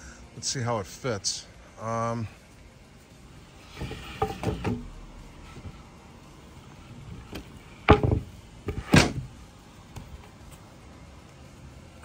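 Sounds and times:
wooden board knocks: 0:03.8 - 0:04.8, 0:07.3 - 0:09.3.

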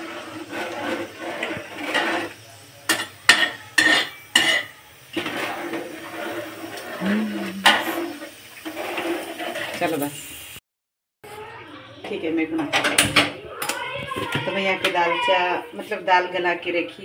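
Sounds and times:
metal pots and cutlery clanking: 0:00.0 - 0:10.1, 0:12.2 - 0:15.0.

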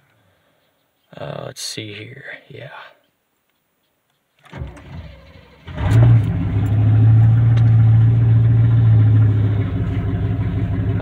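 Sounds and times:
engine starter cranking: 0:04.4 - 0:08.5
loud engine running: 0:04.6 - 0:11.0.

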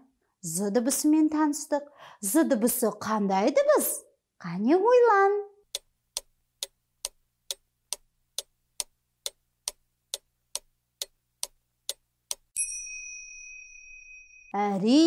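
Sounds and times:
clock ticking: 0:05.7 - 0:12.6
bright chime ringing: 0:12.6 - 0:14.9.

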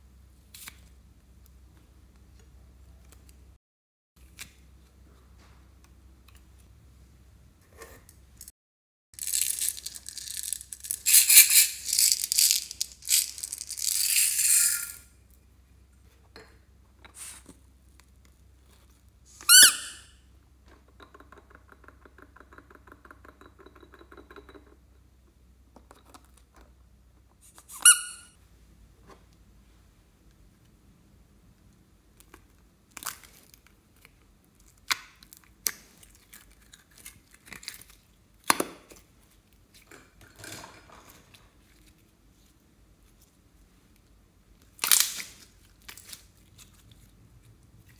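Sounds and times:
rubber toy squeaking: 0:19.5 - 0:20.1, 0:27.7 - 0:28.3.

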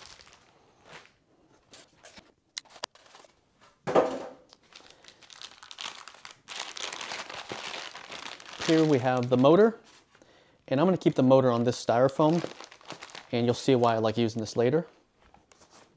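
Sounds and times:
plastic packaging crinkling: 0:00.0 - 0:01.2, 0:04.5 - 0:10.0, 0:12.0 - 0:14.6.

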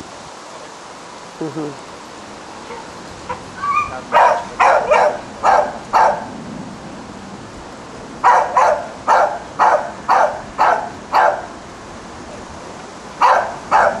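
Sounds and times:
puppy barking: 0:03.6 - 0:06.3, 0:08.2 - 0:11.5, 0:13.2 - 0:14.0.

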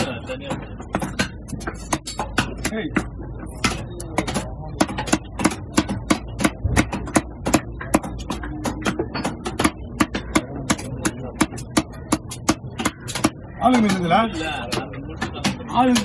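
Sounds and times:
knife chopping fish on wood: 0:00.9 - 0:13.4.

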